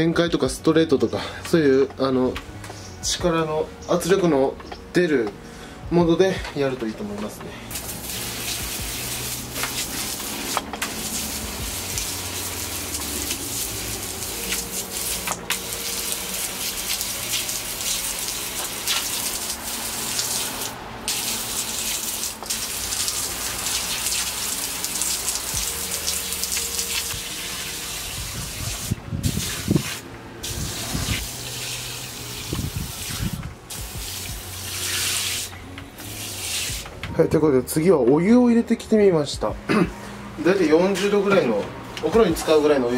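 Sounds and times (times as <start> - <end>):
water jet hissing on concrete: 7.7 - 36.9.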